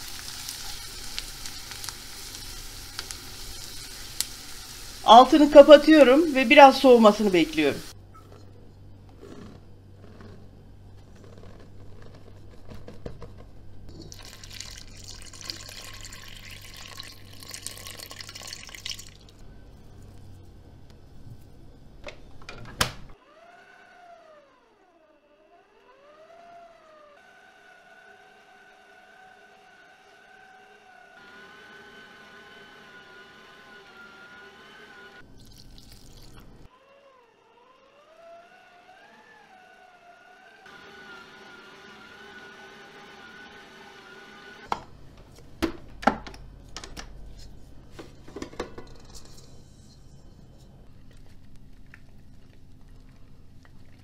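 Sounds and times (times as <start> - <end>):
electric mixer motor whine: 23.2 - 35.2, 36.7 - 44.8.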